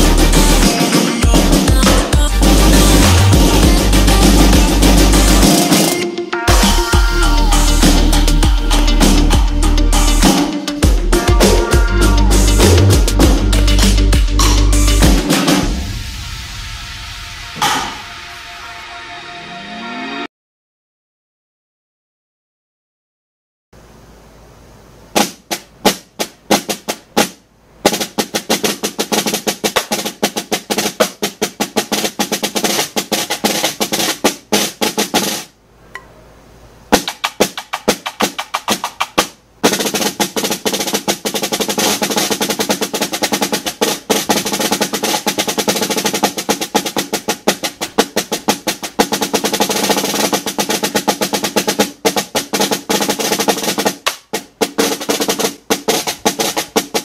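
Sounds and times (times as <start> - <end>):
snare drum rolls and strokes: 0.0 - 20.3, 25.1 - 35.6, 36.9 - 57.0.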